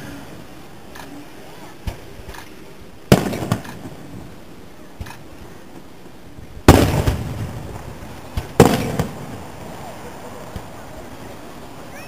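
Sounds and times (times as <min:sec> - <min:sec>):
firework boom: 0:06.6 - 0:10.7.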